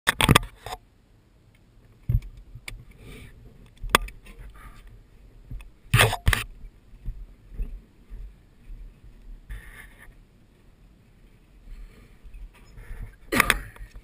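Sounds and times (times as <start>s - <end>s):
faint rubbing and rustling: 2.1s - 14.0s
camera handling knocks and bumps: 5.5s - 7.2s.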